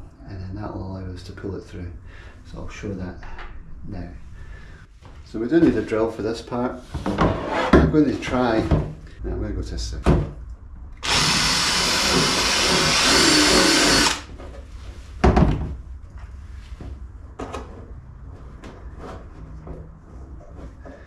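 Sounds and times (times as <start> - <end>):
cordless drill boring plastic: 11.0 - 14.3.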